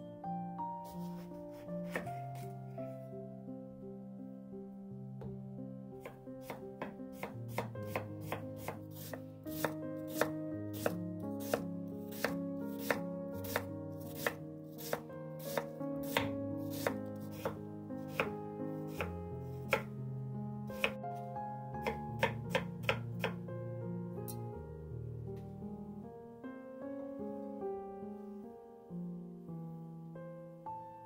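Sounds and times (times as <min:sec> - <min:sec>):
soft background music: 0:00.0 - 0:31.0
knife chopping on wooden board: 0:01.8 - 0:02.2, 0:06.0 - 0:18.3, 0:18.9 - 0:19.9, 0:20.8 - 0:21.0, 0:21.8 - 0:23.4.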